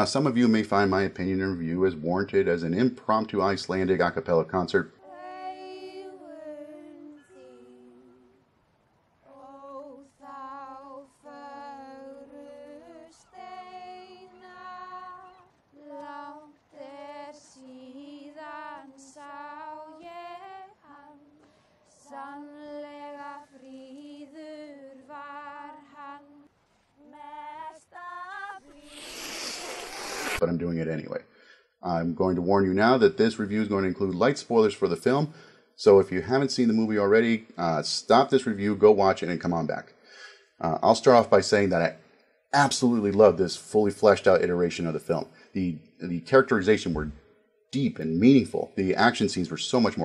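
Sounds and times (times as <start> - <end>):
women singing unaccompanied: 5.0 - 8.5, 9.2 - 28.9.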